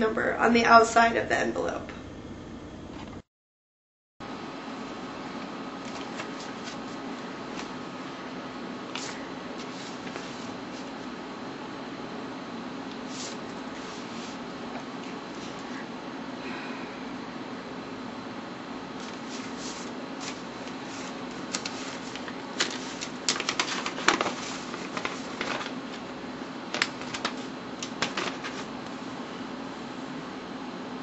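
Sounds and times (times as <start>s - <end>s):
low hum: 1.0s - 3.2s
paper crinkling and rustling: 5.8s - 7.8s, 8.9s - 11.1s, 19.0s - 26.1s, 26.7s - 28.8s.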